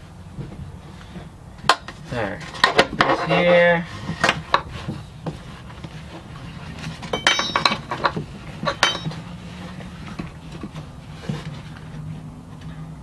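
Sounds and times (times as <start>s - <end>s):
metal hardware clinking: 7.0s - 9.3s.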